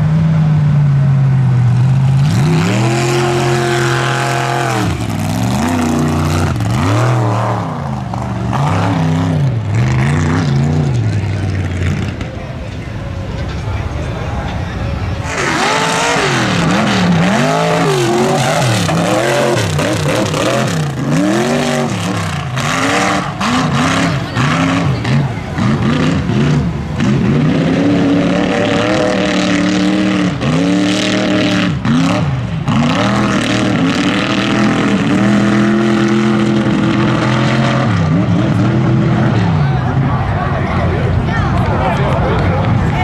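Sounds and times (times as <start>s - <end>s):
buggy engine revving: 0.0s - 43.0s.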